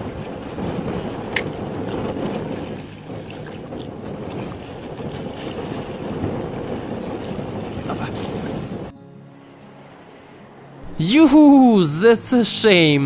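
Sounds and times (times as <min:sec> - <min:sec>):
sea water washing: 0:00.0 - 0:08.9
wind buffeting microphone: 0:00.0 - 0:08.9.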